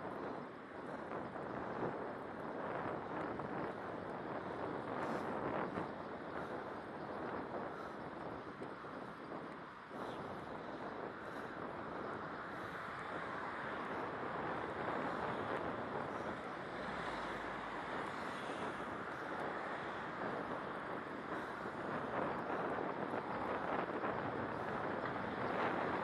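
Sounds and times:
wind on microphone: 0:00.0 - 0:26.0
road traffic: 0:09.6 - 0:26.0.

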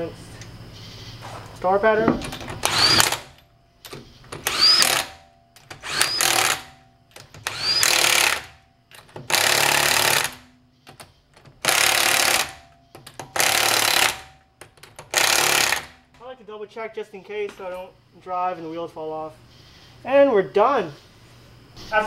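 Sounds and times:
impact wrench hammering: 0:02.1 - 0:16.2.

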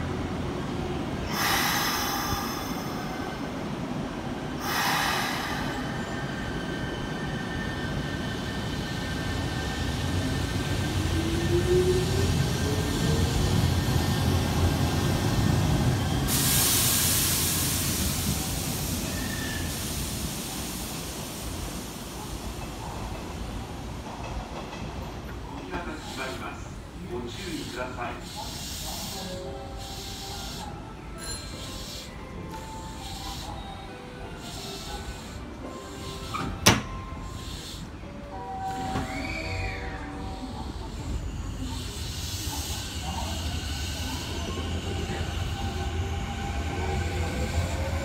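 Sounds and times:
air hisses: 0:01.2 - 0:03.6, 0:04.6 - 0:06.4, 0:16.2 - 0:22.4, 0:27.6 - 0:39.7.

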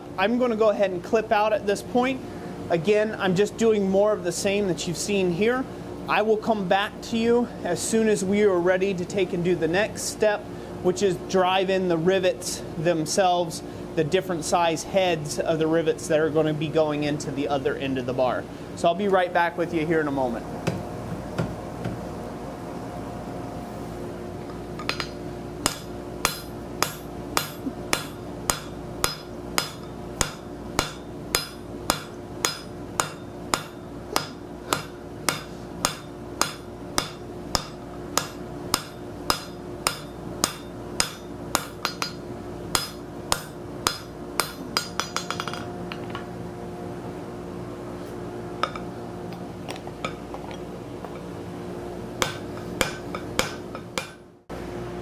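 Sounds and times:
steady hum: 0:00.0 - 0:55.0
hammer striking steel on anvil: 0:24.8 - 0:46.2, 0:48.6 - 0:48.9, 0:52.2 - 0:54.3.

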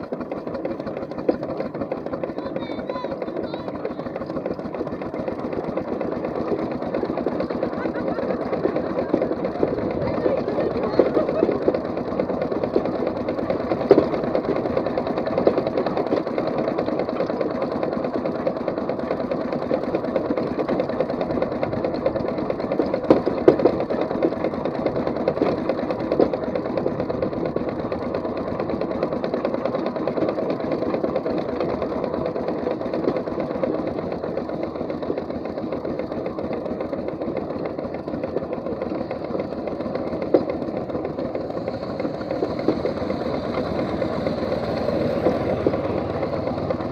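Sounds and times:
steam traction engine chuffing: 0:00.0 - 0:46.9.

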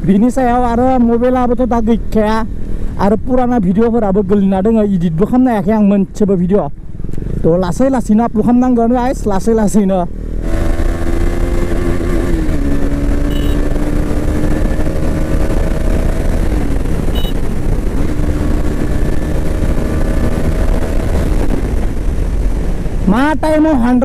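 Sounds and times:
wind rumble: 0:00.0 - 0:24.0
motorcycle engine running: 0:10.0 - 0:23.0.

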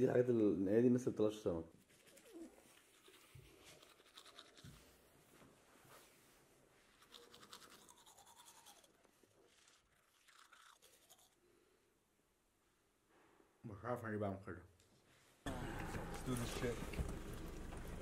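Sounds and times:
toothbrush scrubbing teeth: 0:01.8 - 0:05.0, 0:06.9 - 0:11.4.

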